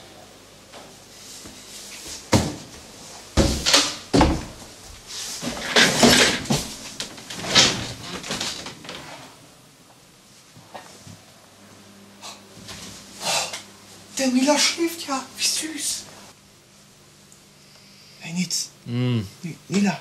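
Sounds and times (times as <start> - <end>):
bedding rustling: 1.3 - 9.4.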